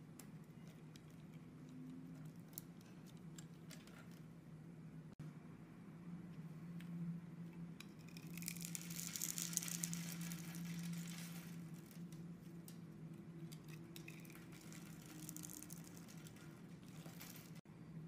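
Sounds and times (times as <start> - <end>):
knife blade shaving soap: 7.8 - 12.6.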